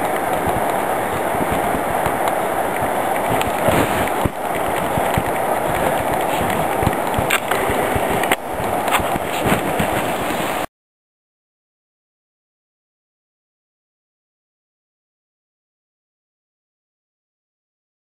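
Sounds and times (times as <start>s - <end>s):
stream rushing over gravel: 0.0s - 10.7s.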